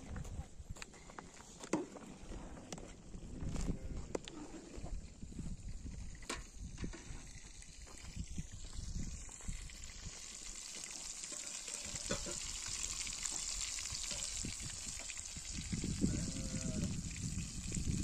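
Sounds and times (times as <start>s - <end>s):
food sizzling in hot oil: 5.2s - 18.0s.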